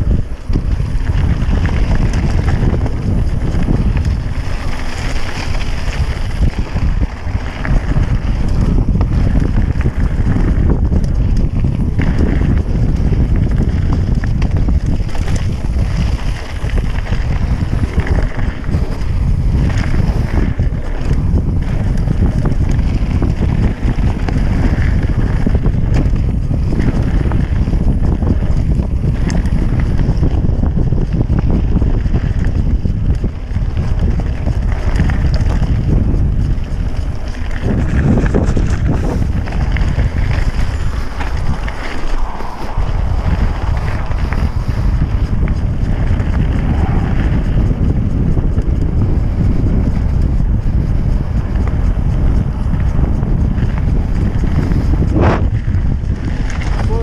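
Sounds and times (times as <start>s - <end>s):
bike tyres rolling on gravel: 0.0s - 57.0s
wind buffeting microphone: 0.0s - 57.0s
rider breathing: 36.4s - 47.7s.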